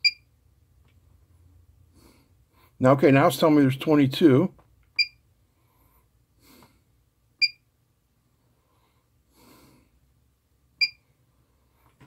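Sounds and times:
electronic key beeps: 0.0 - 0.3, 5.0 - 5.2, 7.4 - 7.6, 10.8 - 11.0
soft breathing: 1.1 - 2.8, 5.4 - 7.0, 8.2 - 10.2, 11.1 - 12.0.

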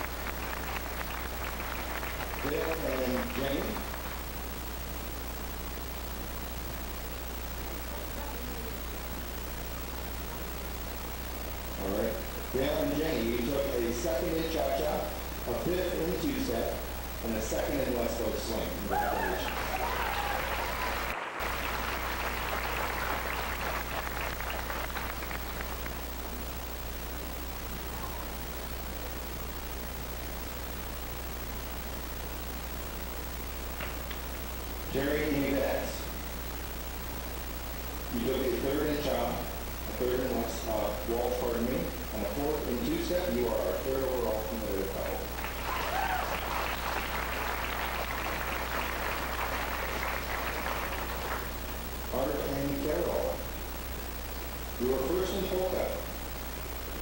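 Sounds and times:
audience applause: 0.0 - 4.2, 18.9 - 26.0, 45.3 - 51.5
steady low hum: 0.0 - 57.0.

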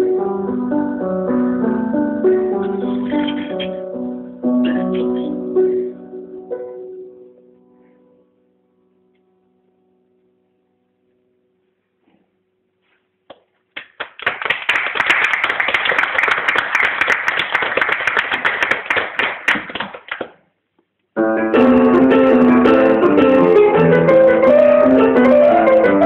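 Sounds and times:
audience applauding: 13.8 - 20.4
keyboard music: 21.2 - 26.0.

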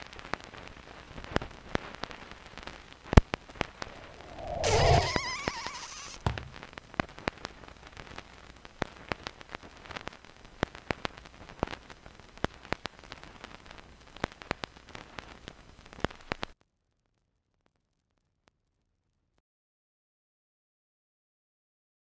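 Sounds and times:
faint steady hiss: 0.0 - 16.6
crackling clicks: 0.1 - 16.6.

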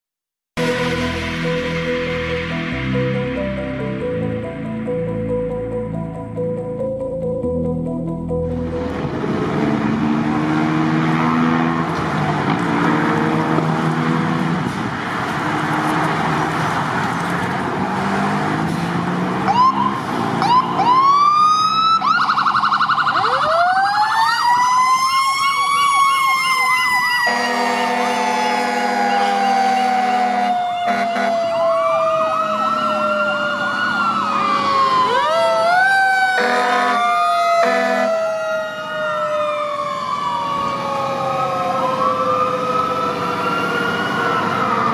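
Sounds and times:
electronic sirens wailing: 0.6 - 44.9
air horn blasts: 27.2 - 31.6, 36.3 - 38.2.

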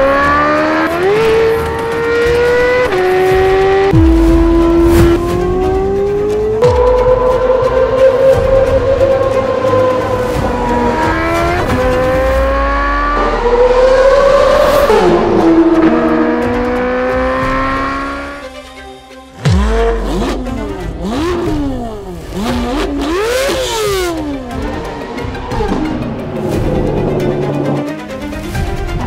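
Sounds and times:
car engine accelerating and revving: 0.0 - 18.6, 19.5 - 28.2.

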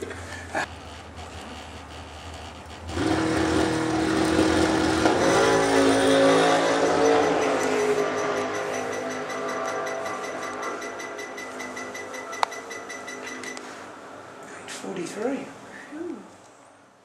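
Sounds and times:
dragster engine roaring: 2.8 - 10.7.

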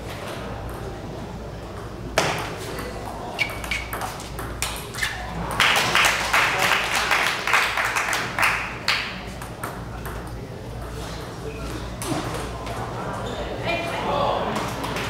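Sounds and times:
table tennis ball hits: 2.2 - 4.9.

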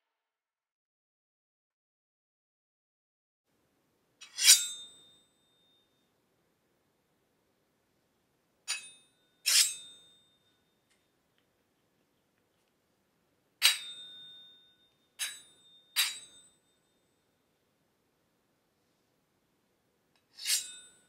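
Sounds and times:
metallic sword strikes ringing: 15.2 - 16.6.

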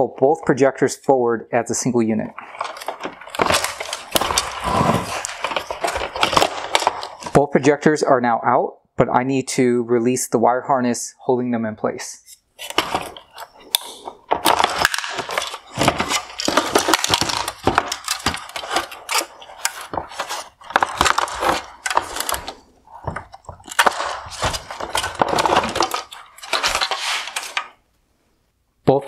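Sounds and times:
plastic clips clicking and rattling: 12.7 - 27.7.

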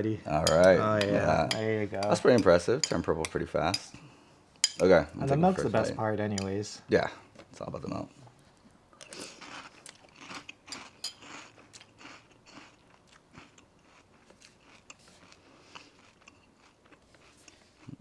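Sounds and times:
crunchy cereal chewing: 9.0 - 18.0.

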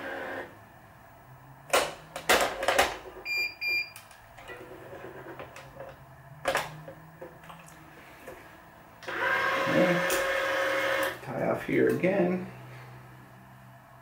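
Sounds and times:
short electronic beeps: 3.3 - 4.0.

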